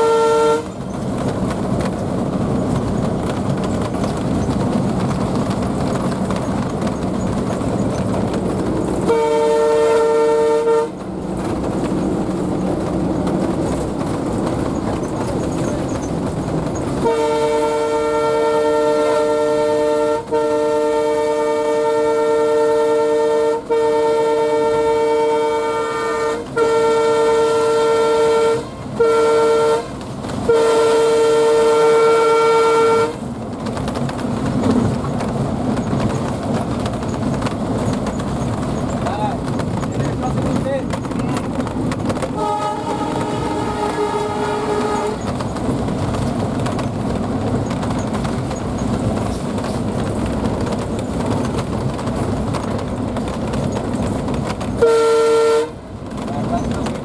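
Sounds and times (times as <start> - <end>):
locomotive horn blasts: 0.0 - 0.8, 9.0 - 11.0, 17.0 - 33.3, 42.3 - 45.4, 54.7 - 55.8
diesel engine and wheels running: 0.0 - 57.0.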